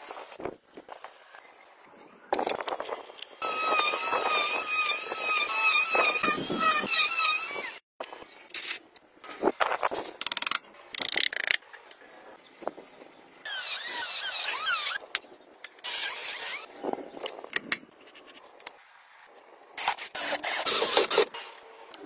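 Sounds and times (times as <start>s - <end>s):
electric drill boring into plastic: 3.4s - 7.8s
plastic squealing and rubbing: 13.5s - 15.0s, 20.2s - 21.3s.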